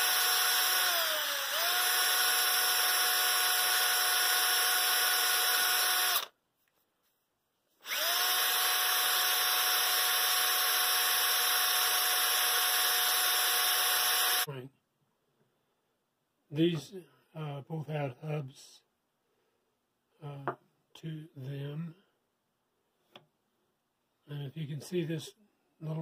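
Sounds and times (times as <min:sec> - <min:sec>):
cordless drill motor whine: 0:00.0 - 0:06.3, 0:07.8 - 0:14.5.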